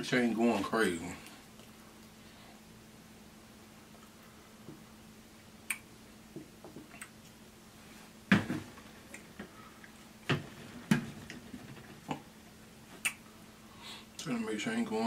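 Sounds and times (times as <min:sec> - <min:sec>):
faint steady hum: 0:00.0 - 0:15.0
crunching and mouth smacks: 0:06.8 - 0:07.4, 0:13.0 - 0:13.3.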